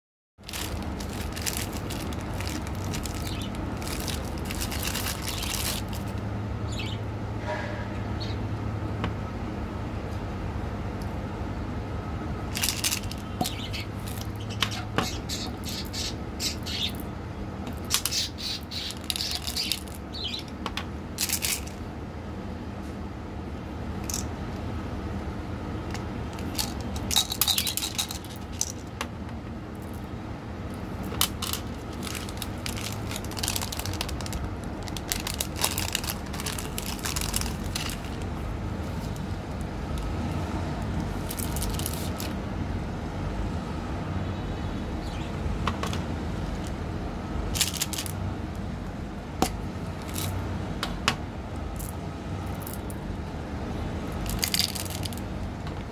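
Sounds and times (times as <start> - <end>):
rustling: 0.4 - 6.2
steady low hum: 0.4 - 55.9.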